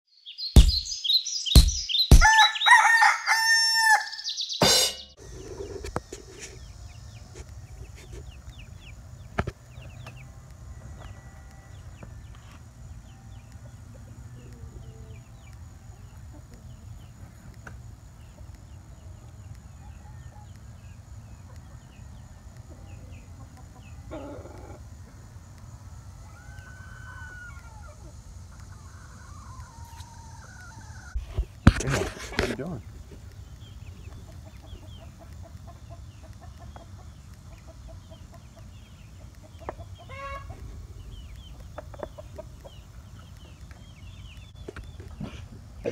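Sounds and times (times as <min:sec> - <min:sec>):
chicken squawk: 0:02.1 - 0:05.0, 0:26.2 - 0:31.2, 0:40.0 - 0:40.6
chickens clucking: 0:04.6 - 0:45.9.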